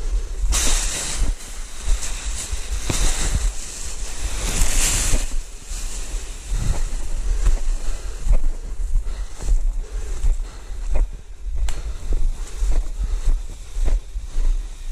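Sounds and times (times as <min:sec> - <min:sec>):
balloon fabric rustling: 0:00.0 - 0:09.7
wind buffeting microphone: 0:00.0 - 0:14.9.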